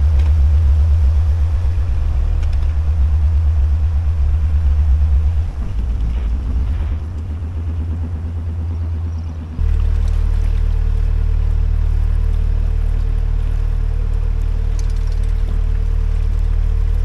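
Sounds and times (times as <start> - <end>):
boat engine throbbing rumble: 0.0 - 17.0.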